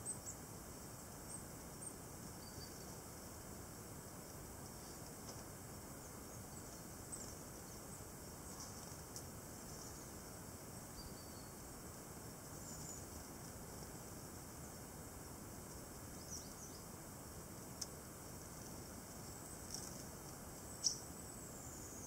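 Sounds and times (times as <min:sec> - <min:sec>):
tits calling: 0:00.0 - 0:03.0, 0:06.0 - 0:11.8, 0:12.4 - 0:13.2, 0:16.0 - 0:17.0, 0:19.2 - 0:22.0
outdoor hiss: 0:00.0 - 0:22.0.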